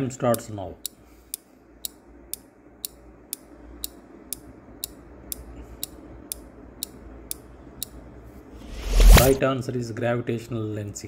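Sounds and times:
faint background hum: 0.0 - 11.0.

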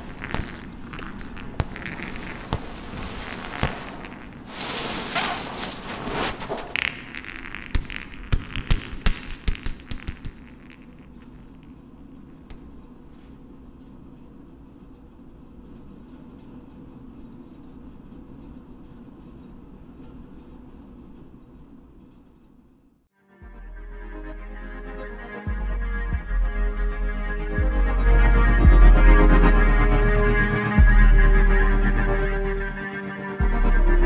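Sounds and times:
exercise ball bouncing on floor: 0.0 - 4.5, 6.6 - 11.4.

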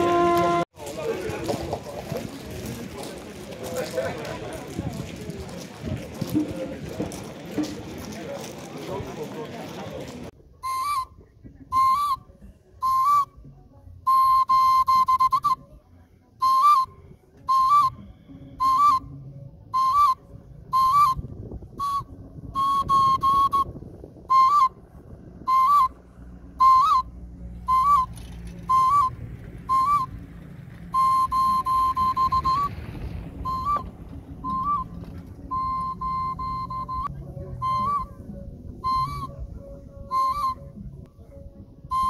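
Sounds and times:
shrill whistle blasts: 10.6 - 11.1, 11.7 - 12.2, 12.8 - 13.4, 14.1 - 15.6, 16.4 - 19.1, 19.7 - 21.2, 21.8 - 23.7, 24.3 - 24.8, 25.4 - 26.0, 26.6 - 27.1, 27.7 - 29.1, 29.7 - 30.1, 30.9 - 32.7, 33.4 - 33.9, 34.5 - 34.9, 35.5 - 38.2, 38.8 - 39.4, 40.1 - 40.7.

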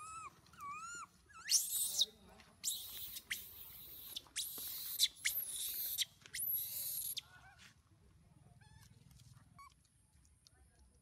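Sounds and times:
baby monkey screaming: 0.0 - 2.0
faint wavering whimpering calls: 0.0 - 2.0.

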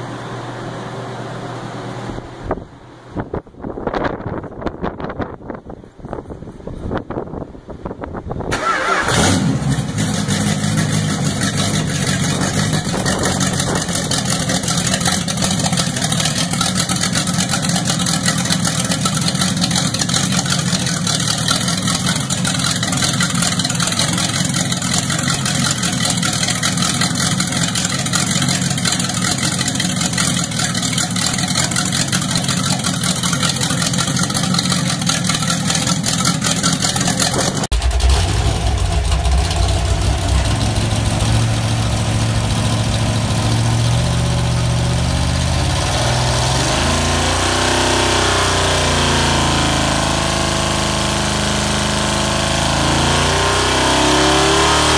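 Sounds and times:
vee eight engine starting and running: 8.5 - 54.9.

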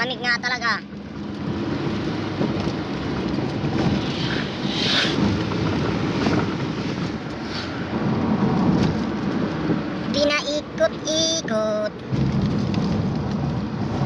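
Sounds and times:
van road and engine rumble: 0.0 - 14.0.

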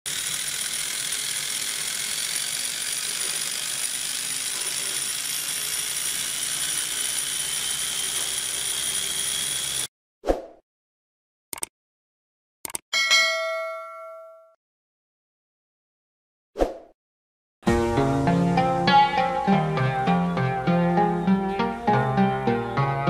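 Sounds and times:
gearbox whirring with high whine: 0.1 - 9.9.

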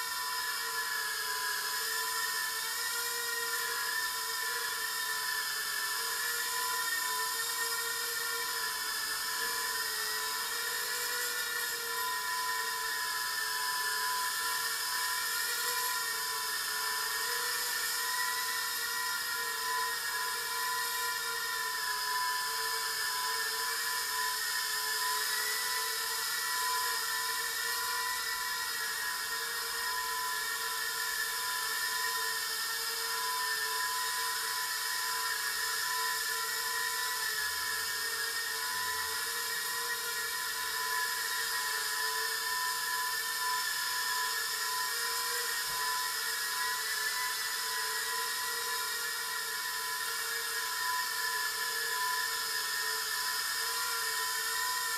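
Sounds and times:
quadcopter motors whining: 0.0 - 54.9.

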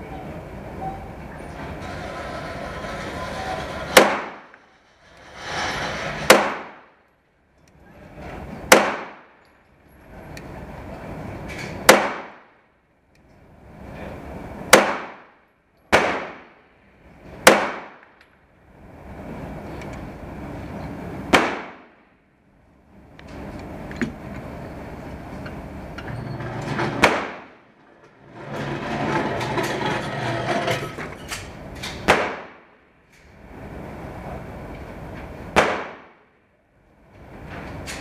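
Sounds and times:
pistol shots: 8.7 - 9.2, 17.5 - 18.0, 21.3 - 21.9, 32.1 - 32.6, 35.6 - 36.2.

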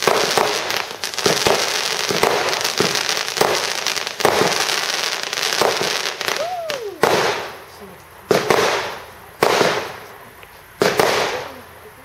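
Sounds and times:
fireworks bursting with bangs: 0.0 - 12.0
fireworks crackling: 0.0 - 12.0.

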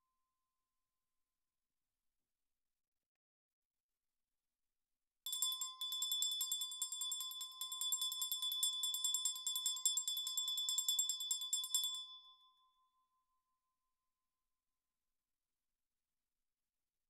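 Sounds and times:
small bell rung rapidly: 5.3 - 12.7.

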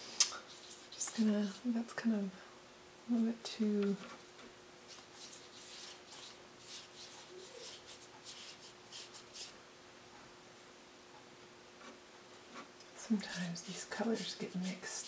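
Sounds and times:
brush strokes on paper: 0.4 - 1.8, 4.9 - 9.6, 11.8 - 15.0.

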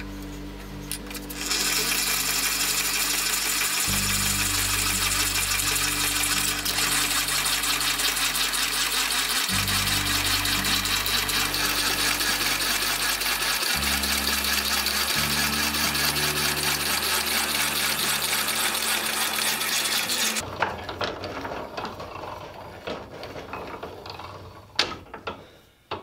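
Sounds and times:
drill press boring through steel: 0.9 - 20.4
ratchet clicking: 0.9 - 20.4.

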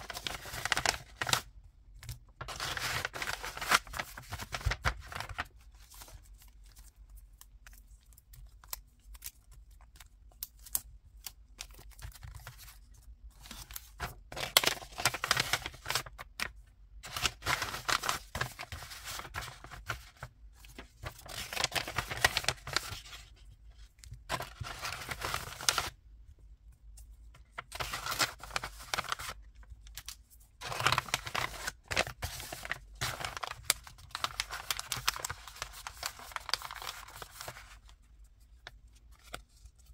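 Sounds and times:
paper rustling and sliding: 0.0 - 1.5, 2.4 - 6.3, 12.4 - 23.5, 24.3 - 26.0, 27.6 - 29.4, 30.6 - 37.8.

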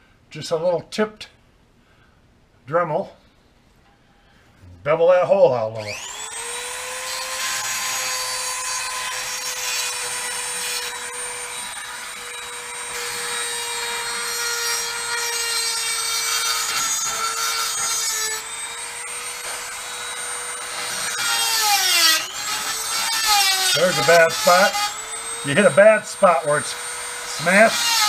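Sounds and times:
rotary tool whining: 5.8 - 28.0
scratchy grinding of metal: 5.9 - 28.0.

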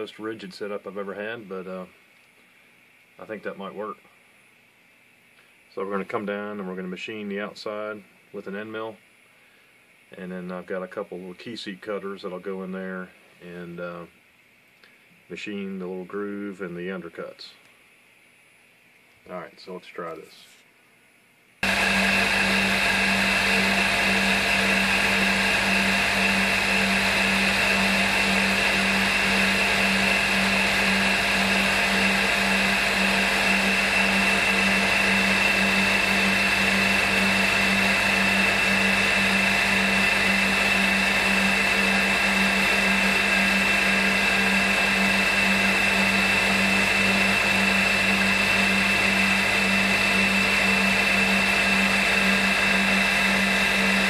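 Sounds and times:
milling machine spindle whine: 21.6 - 54.0.

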